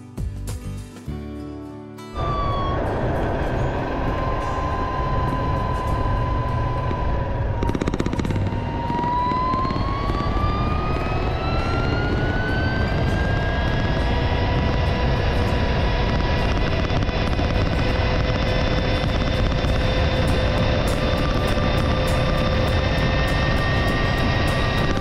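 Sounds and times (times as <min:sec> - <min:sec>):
motorcycle engine whine: 0:02.2 - 0:25.0
wind and road noise: 0:02.2 - 0:25.0.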